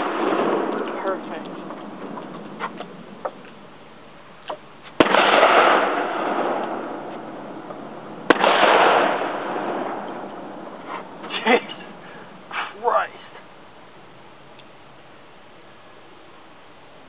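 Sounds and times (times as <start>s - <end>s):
explosive bangs with echo: 0.0s - 1.4s, 5.0s - 7.4s, 8.2s - 10.6s.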